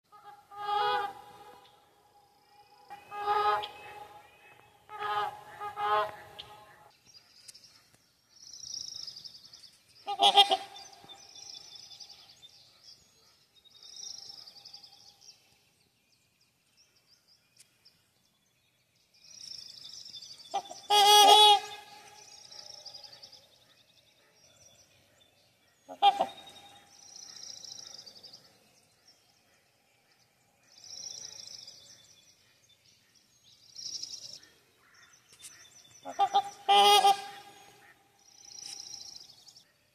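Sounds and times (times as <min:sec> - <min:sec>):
swans honking: 0:00.1 - 0:02.0, 0:02.9 - 0:06.9, 0:10.1 - 0:11.0, 0:20.6 - 0:22.2, 0:25.9 - 0:26.9, 0:36.0 - 0:38.0.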